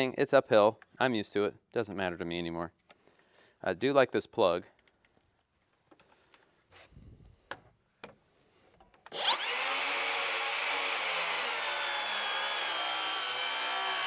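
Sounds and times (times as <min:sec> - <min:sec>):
circular saw cutting wood: 0:09.1 - 0:14.0.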